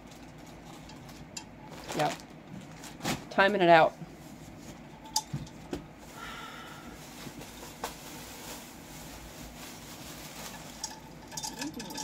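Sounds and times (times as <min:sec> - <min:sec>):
items being moved in closet: 0:00.0 - 0:12.0.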